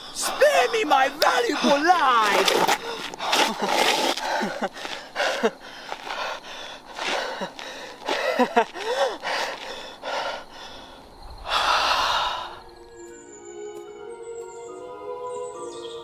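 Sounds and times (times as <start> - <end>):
man gasping breaths: 2.8 - 12.6.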